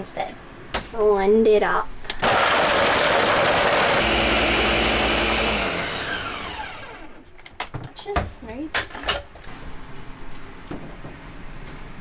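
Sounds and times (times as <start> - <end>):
blender blades spinning down: 2.2 - 7.2
blender running: 2.2 - 7.2.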